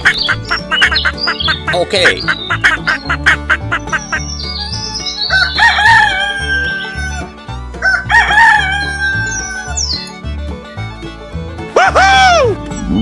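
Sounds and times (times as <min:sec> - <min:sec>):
background music with steady beat: 0:00.0 - 0:13.0
rooster crowing: 0:05.3 - 0:09.8.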